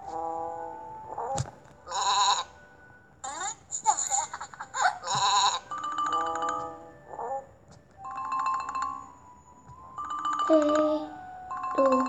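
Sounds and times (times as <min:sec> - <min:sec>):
ringing marimba-like notes: 0:10.0 - 0:12.0.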